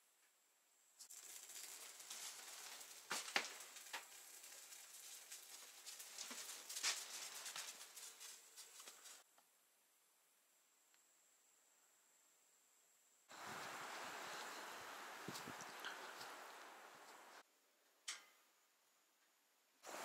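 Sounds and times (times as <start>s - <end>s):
rustling and handling noise: 1.0s - 9.3s.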